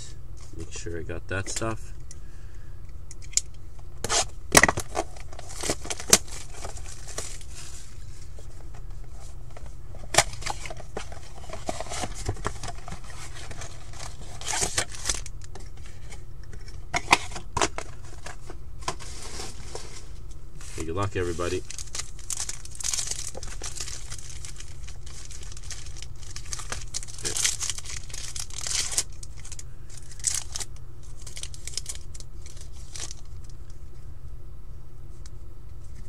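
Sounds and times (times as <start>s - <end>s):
cardboard and wrapping tearing: 10.2s - 15.3s, 21.2s - 33.2s.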